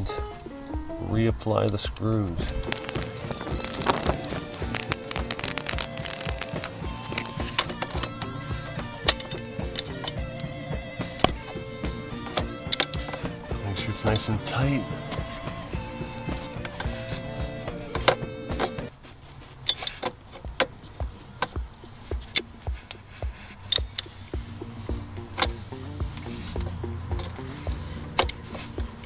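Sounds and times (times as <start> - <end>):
background music with held notes: 0.0 - 18.9, 21.0 - 29.0
sharp clicks: 1.9 - 14.3
hand tool metal clicks: 12.2 - 13.4.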